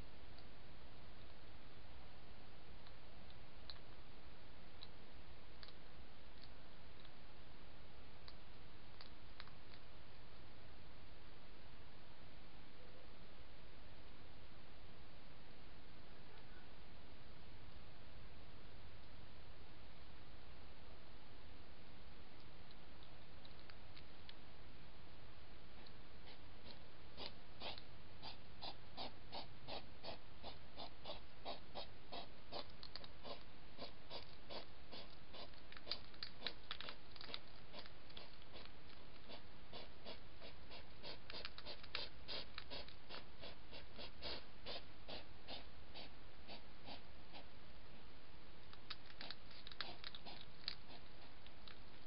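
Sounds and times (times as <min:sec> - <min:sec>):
faint hiss: 0:00.0 - 0:52.0
hedgehog crunching food: 0:26.2 - 0:47.4, 0:48.7 - 0:52.0.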